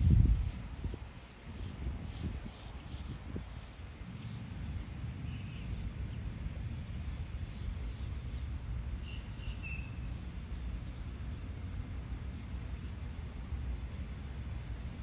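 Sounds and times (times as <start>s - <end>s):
low outdoor rumble: 0.0s - 15.0s
bird chirps: 9.0s - 10.2s.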